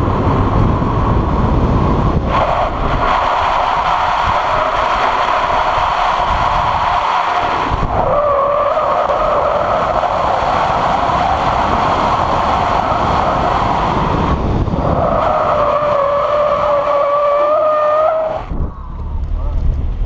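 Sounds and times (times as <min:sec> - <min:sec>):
engine at high revs: 0:00.0 - 0:20.0.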